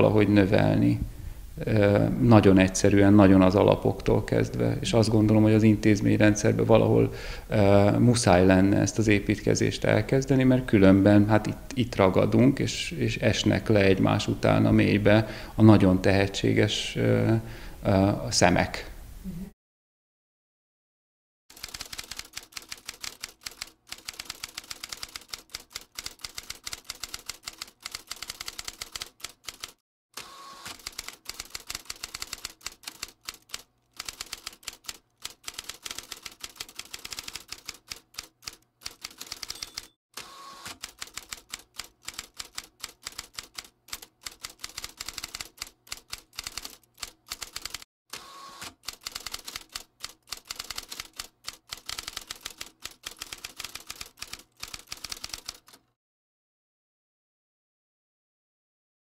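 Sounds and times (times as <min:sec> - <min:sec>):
typewriter keys clacking: 0:21.5 - 0:29.8, 0:30.9 - 0:40.0, 0:40.8 - 0:47.8, 0:48.8 - 0:55.9
brief ringing tone: 0:39.5 - 0:40.0.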